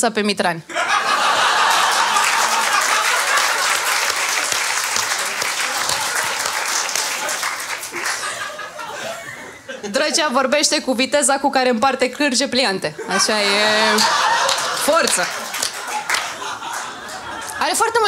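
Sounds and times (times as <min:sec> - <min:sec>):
audience laughter: 0:00.7 - 0:10.2, 0:13.0 - 0:18.0
audience applause: 0:01.2 - 0:08.7, 0:13.9 - 0:17.6.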